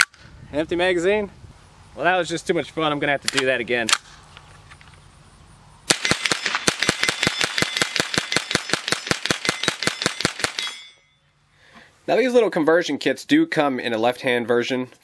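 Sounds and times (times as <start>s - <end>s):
rapid rifle shots: 5.9s - 10.8s.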